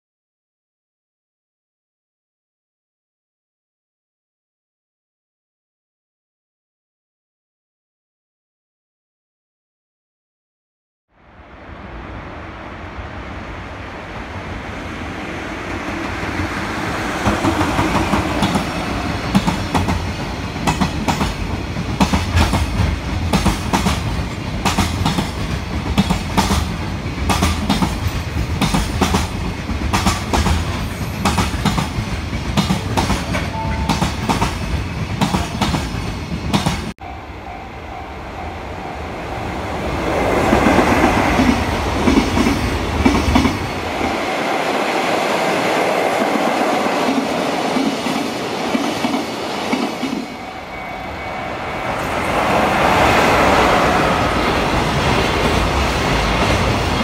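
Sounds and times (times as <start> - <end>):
freight train passing: 11.2 - 57.0.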